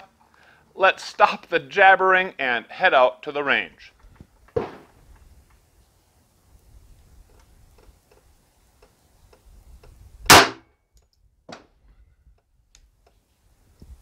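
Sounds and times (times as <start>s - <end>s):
pistol shot: 4.6s - 4.9s, 10.3s - 10.7s.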